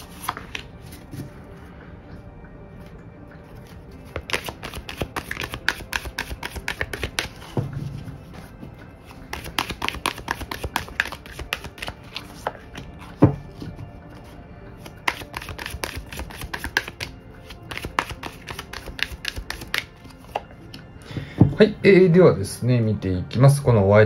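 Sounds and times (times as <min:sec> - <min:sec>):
cards shuffling: 0:00.0 - 0:01.4, 0:04.0 - 0:07.6, 0:08.3 - 0:13.4, 0:14.2 - 0:20.5.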